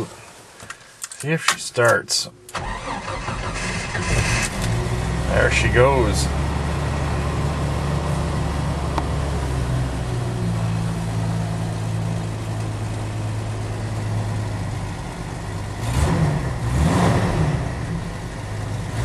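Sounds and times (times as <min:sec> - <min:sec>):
engine revving: 0:02.6 - 0:11.4, 0:15.6 - 0:19.0
engine idling rough: 0:02.6 - 0:19.0.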